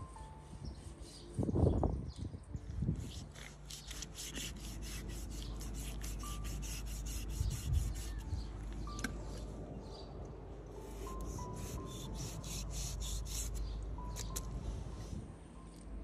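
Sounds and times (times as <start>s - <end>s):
knife scraping and cutting meat: 3.0s - 8.2s.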